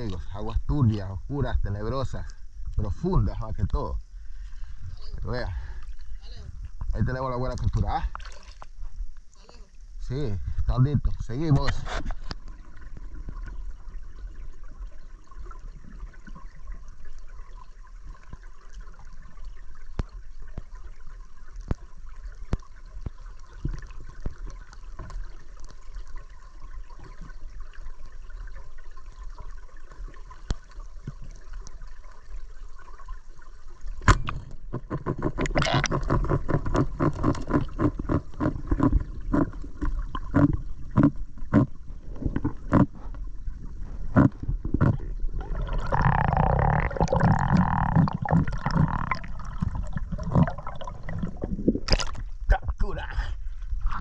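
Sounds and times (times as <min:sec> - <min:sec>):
low underwater rumble: 0:00.0 - 0:52.8
water bubbling and churning: 0:02.0 - 0:54.0
faint underwater clicks: 0:18.2 - 0:20.9, 0:44.1 - 0:52.5.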